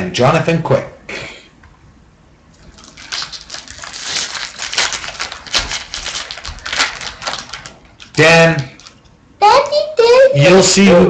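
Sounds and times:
card packaging crinkling: 2.6s - 9.1s.

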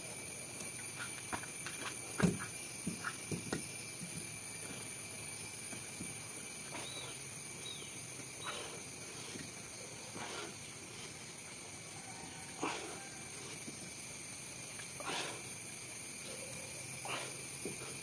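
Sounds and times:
insects trilling: 0.0s - 18.0s.

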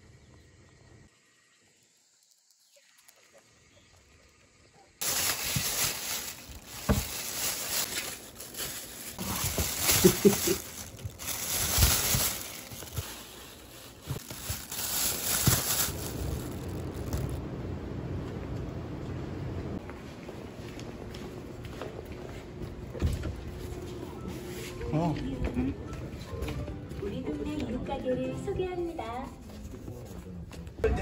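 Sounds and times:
plastic bags rustling: 5.0s - 17.4s.

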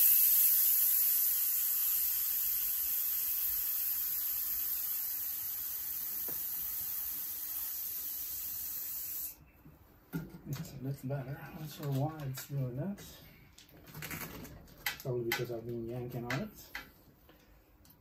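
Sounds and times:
air hissing from tyre valve: 0.0s - 9.4s.

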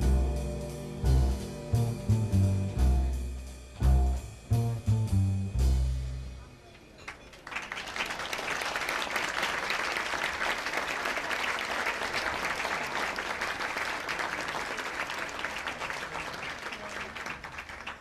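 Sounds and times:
crowd applauding: 7.0s - 18.0s.

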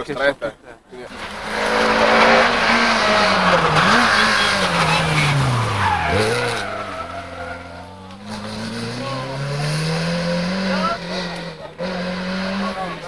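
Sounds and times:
tyre noise and squeal: 1.1s - 9.4s
rally car engine at speed: 1.1s - 13.0s.

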